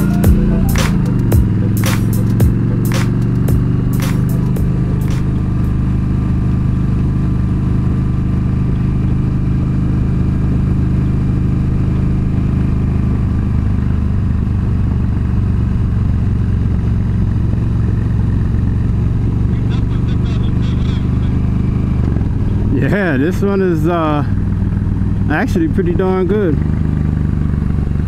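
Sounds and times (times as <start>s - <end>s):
motorcycle engine cruising: 0.0s - 28.0s
wind rush of moving bike: 4.7s - 19.6s, 26.6s - 28.0s.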